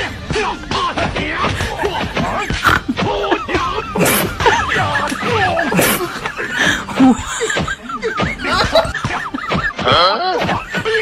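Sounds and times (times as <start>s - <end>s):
background music: 0.0s - 11.0s
snickering laughter: 2.6s - 11.0s.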